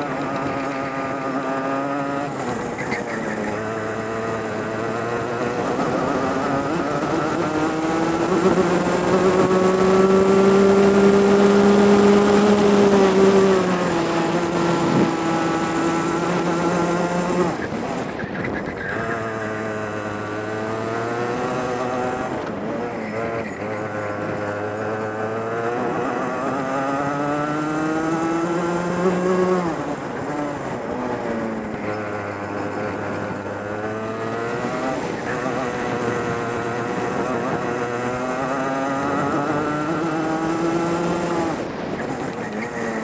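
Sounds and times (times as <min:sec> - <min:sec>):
kart two-stroke engine revving: 0:00.0 - 0:43.0.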